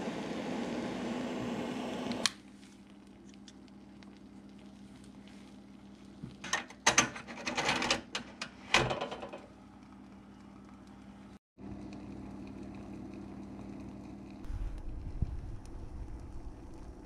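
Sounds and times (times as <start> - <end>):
steady low hum: 9.5 - 17.0.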